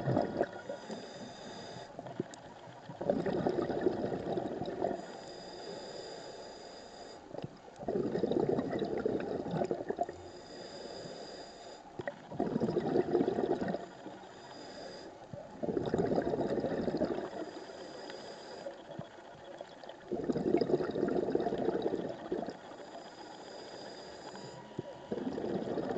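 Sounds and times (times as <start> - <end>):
exhaust bubbles bubbling: 0.0 - 0.6, 2.0 - 5.0, 7.8 - 10.2, 12.0 - 13.8, 15.5 - 17.4, 20.1 - 22.6, 25.1 - 25.9
diver inhaling through regulator: 0.0 - 2.3, 3.0 - 19.3, 20.1 - 25.9.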